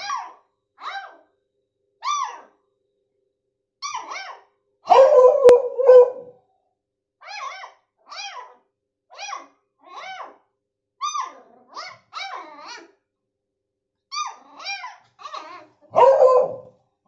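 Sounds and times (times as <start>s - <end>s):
puppy yipping: 0.0s - 1.2s, 2.0s - 2.6s, 3.8s - 6.3s, 7.2s - 10.4s, 11.0s - 12.9s, 14.1s - 16.7s
deep dog bark: 4.9s - 6.4s, 15.9s - 16.7s.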